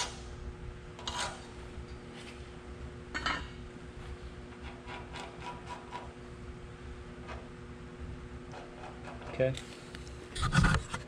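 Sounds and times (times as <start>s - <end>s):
faint steady hum: 0.0s - 11.0s
tool scraping on steel: 1.0s - 1.6s, 4.5s - 6.2s, 8.5s - 9.6s.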